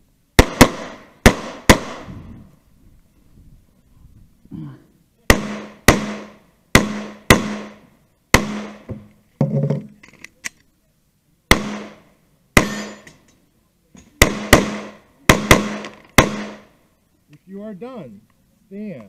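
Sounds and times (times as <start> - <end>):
pistol shots with echo: 0.4 - 2.1, 5.3 - 7.8, 8.4 - 8.9, 11.5 - 12.0, 14.2 - 16.7.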